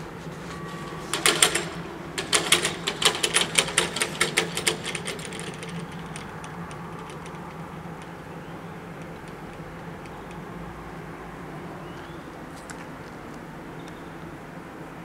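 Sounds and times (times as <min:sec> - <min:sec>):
faint warning bell: 0:00.0 - 0:11.2.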